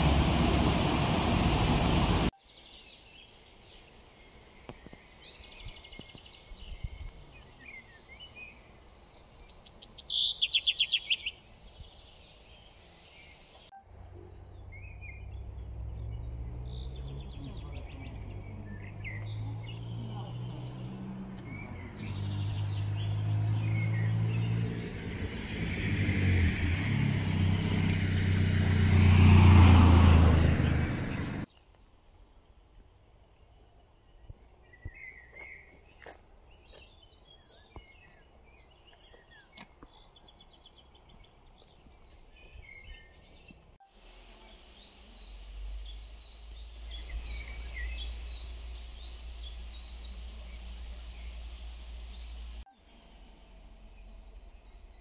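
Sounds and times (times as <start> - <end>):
vehicle engine: 0.0 - 2.3, 13.8 - 31.5, 43.9 - 55.0
songbirds chirping: 0.0 - 55.0.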